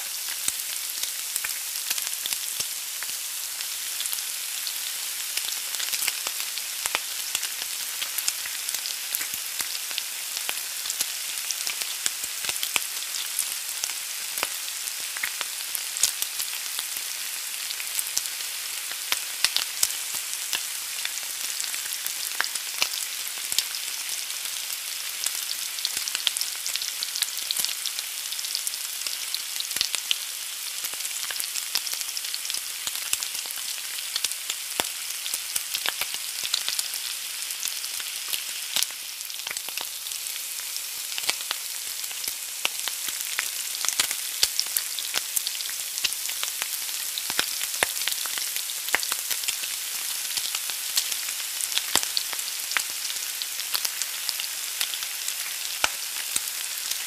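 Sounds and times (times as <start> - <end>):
egg sizzling in a pan: 0.0 - 57.0.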